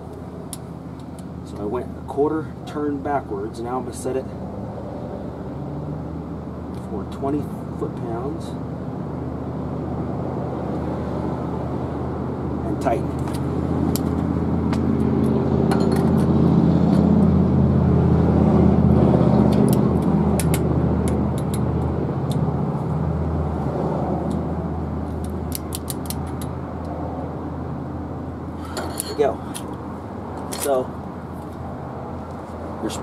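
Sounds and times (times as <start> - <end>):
metallic clicks of hand tools: 25.2 - 27.0.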